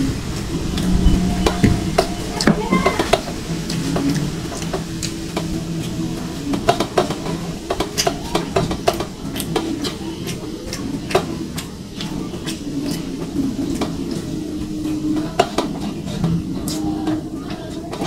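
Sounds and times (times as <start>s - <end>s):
wet chewing: 7.8s - 15.0s.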